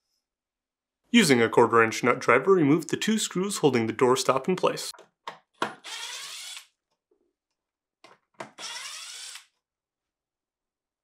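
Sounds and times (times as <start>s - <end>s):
cordless driver motor whine: 8.5s - 9.5s.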